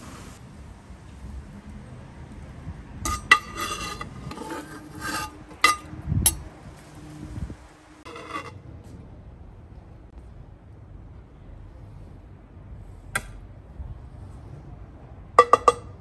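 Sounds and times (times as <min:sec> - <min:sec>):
metal skimmer scraping pot: 0:03.1 - 0:05.9, 0:08.0 - 0:08.6.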